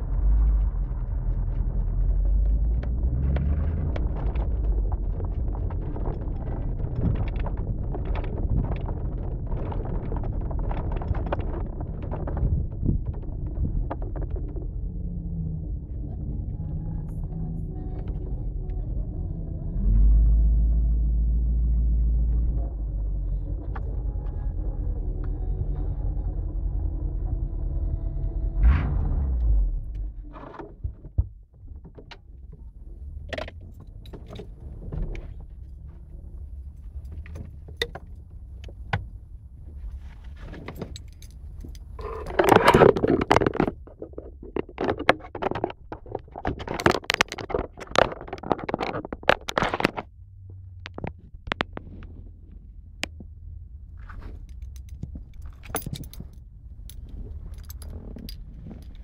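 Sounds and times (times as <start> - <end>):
low steady rumble: 0.0 - 59.0
rustling: 32.5 - 59.0
phone handling clicks and rattles: 40.5 - 50.1, 54.4 - 59.0.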